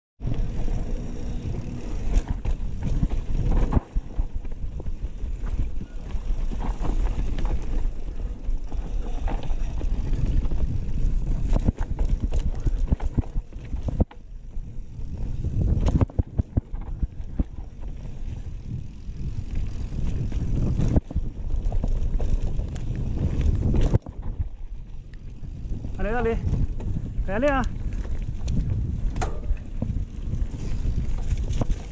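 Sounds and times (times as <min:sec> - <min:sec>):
tyres rumbling over dirt: 0:00.2 - 0:24.4
bike clacking and rattling: 0:00.2 - 0:31.9
wind buffeting microphone: 0:00.2 - 0:31.9.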